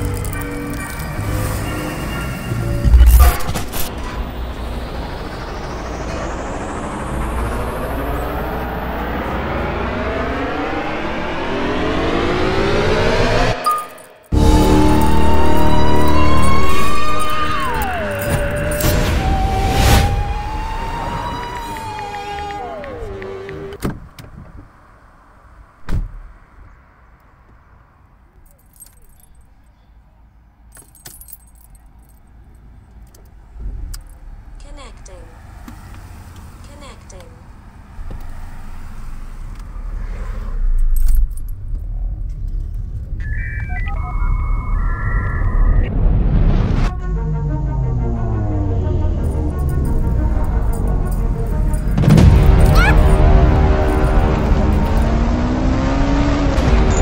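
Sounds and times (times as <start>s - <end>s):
car keys jangling: 0.0s - 1.3s, 13.7s - 19.0s, 28.3s - 29.8s, 30.7s - 33.3s, 40.8s - 41.9s, 49.2s - 53.2s
vehicle engine accelerating: 0.0s - 23.8s, 44.8s - 57.0s
street traffic: 0.0s - 57.0s.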